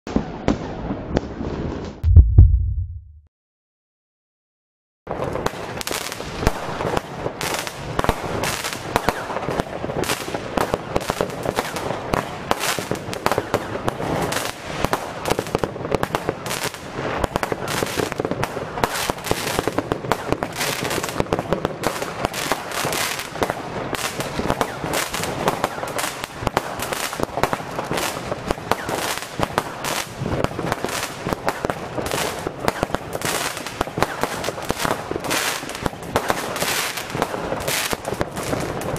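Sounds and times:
fireworks shots and bursting pops: 0:00.1 - 0:03.2, 0:05.1 - 0:38.9.

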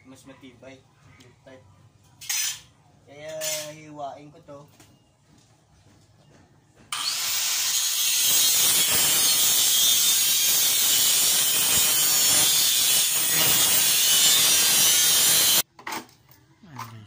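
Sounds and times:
angle grinder cutting metal: 0:06.9 - 0:15.6.

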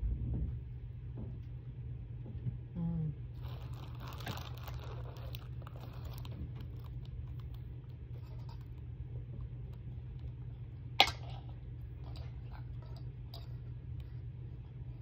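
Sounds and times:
steady low hum: 0:00.0 - 0:15.0
person chewing food: 0:03.4 - 0:10.8.

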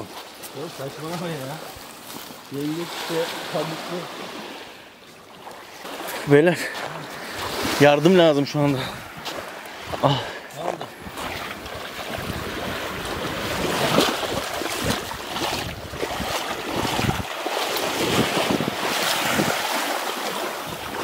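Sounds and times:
waves washing on beach: 0:00.0 - 0:21.0
wind buffeting microphone: 0:07.3 - 0:19.7, 0:20.6 - 0:21.0.

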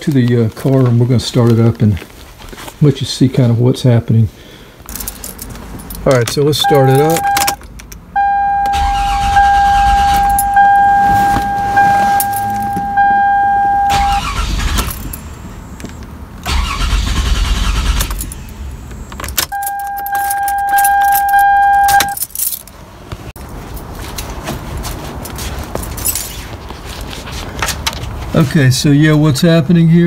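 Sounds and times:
keys jangling: 0:04.9 - 0:08.0, 0:09.8 - 0:13.0, 0:14.7 - 0:15.3, 0:19.2 - 0:22.8, 0:25.2 - 0:26.5
dashboard warning tone: 0:06.6 - 0:07.6, 0:08.2 - 0:15.8, 0:19.5 - 0:22.2
car starter cranking: 0:06.6 - 0:15.6, 0:16.4 - 0:22.2.

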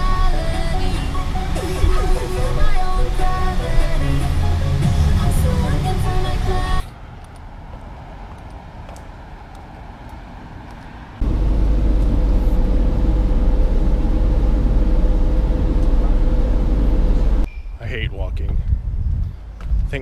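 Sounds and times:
bus engine rumble from inside: 0:09.3 - 0:17.5.

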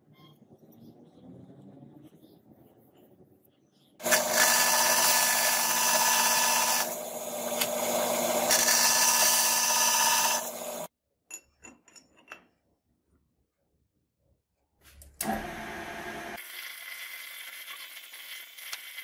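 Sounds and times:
power saw cutting metal: 0:04.0 - 0:10.9.

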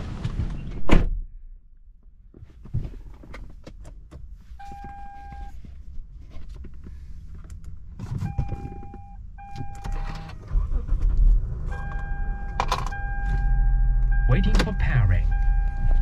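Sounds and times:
electronic car chime: 0:11.7 - 0:16.0.

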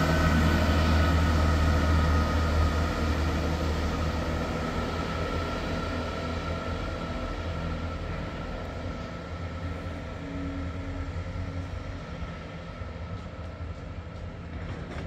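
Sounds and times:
train diesel engines humming: 0:00.0 - 0:15.0.

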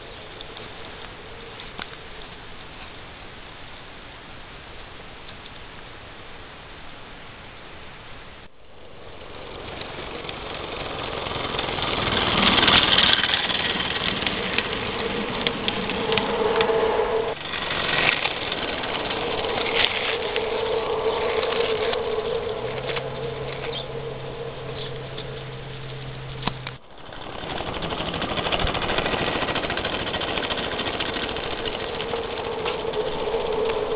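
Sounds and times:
steam locomotive running: 0:08.5 - 0:33.9
steam whistle blasts: 0:14.6 - 0:26.3.

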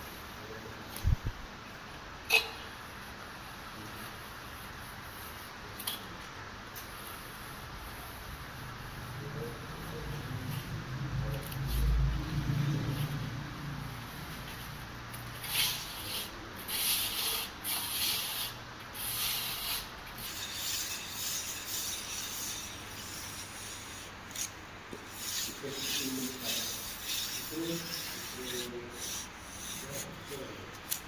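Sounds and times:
hand tools scraping wet plaster: 0:15.4 - 0:30.5.

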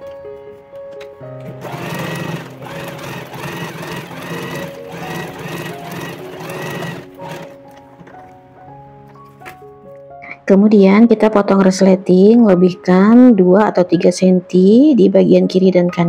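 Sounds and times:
sewing machine stitching: 0:01.6 - 0:07.6.

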